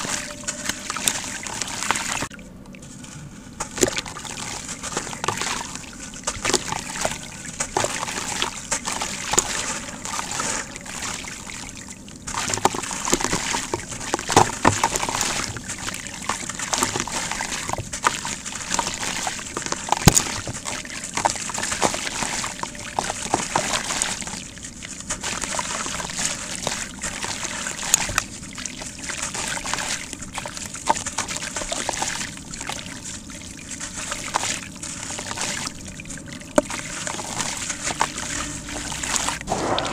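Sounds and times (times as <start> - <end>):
grit splashing into water: 0.0 - 39.9.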